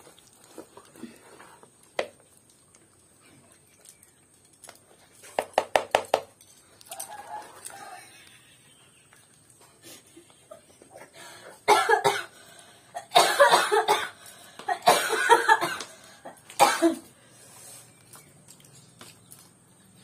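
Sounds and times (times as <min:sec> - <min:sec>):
person coughing: 0:11.7 - 0:12.4, 0:13.0 - 0:15.9, 0:16.6 - 0:17.1.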